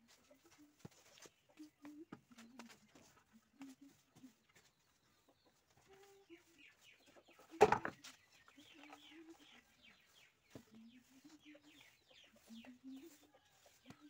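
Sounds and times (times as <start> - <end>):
chicken clucking: 0.1 - 14.0
broom sweeping a mud floor: 6.4 - 14.0.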